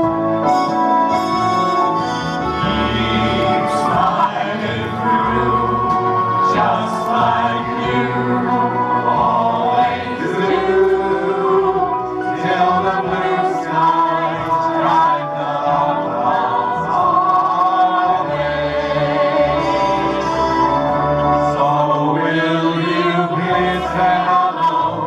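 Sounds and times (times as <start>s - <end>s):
vocal group singing over loudspeakers: 2.4s - 25.0s.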